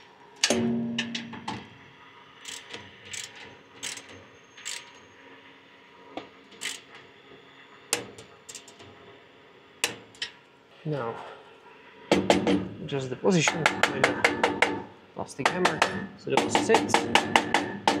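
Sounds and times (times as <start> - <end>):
ratcheting torque wrench clicking: 2.4 - 5.0, 6.6 - 6.9, 8.5 - 8.8.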